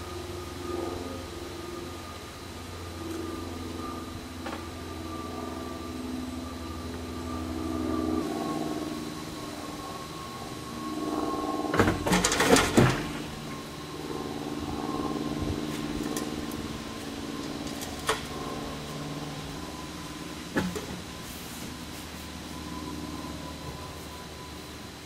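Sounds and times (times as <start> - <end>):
engine running: 0.0 - 25.0
knocks and clatter: 11.7 - 13.3.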